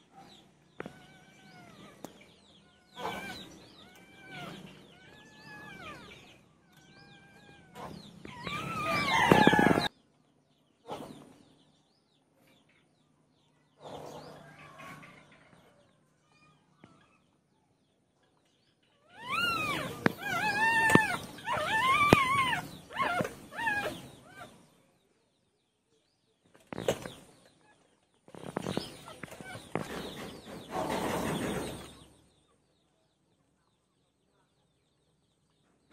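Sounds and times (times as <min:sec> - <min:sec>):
puppies whining and squealing: 0:00.8 - 0:09.9, 0:19.0 - 0:24.7, 0:27.7 - 0:32.0.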